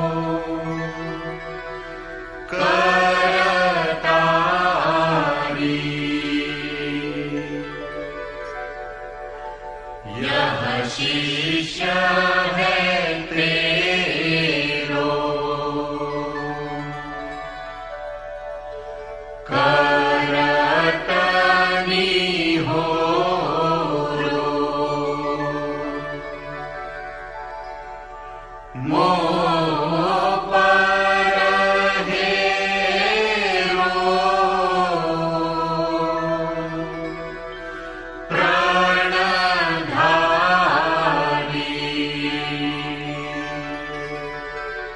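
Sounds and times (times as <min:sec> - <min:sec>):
person singing long held notes: 0:00.0 - 0:08.6, 0:28.7 - 0:44.9
steady drone: 0:00.0 - 0:44.9
person chanting: 0:02.5 - 0:07.9, 0:10.1 - 0:17.0, 0:19.5 - 0:26.3, 0:28.8 - 0:37.4, 0:38.3 - 0:44.4.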